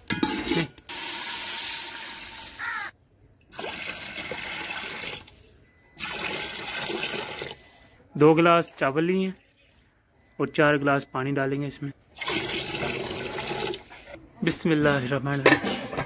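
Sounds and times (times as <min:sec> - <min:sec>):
water pouring into metal pot: 0:00.5 - 0:02.6, 0:03.5 - 0:05.3, 0:06.0 - 0:07.6, 0:12.2 - 0:14.1.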